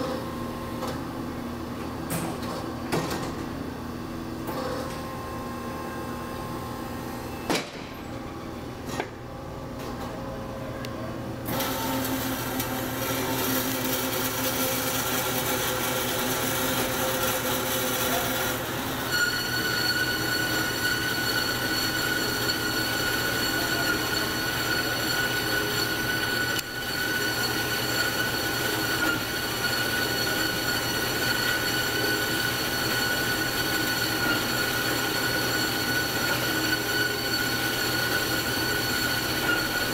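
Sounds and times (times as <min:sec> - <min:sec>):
band saw cutting metal tubing: 0:11.5 - 0:39.9
high-pitched metallic squeal: 0:12.1 - 0:39.9.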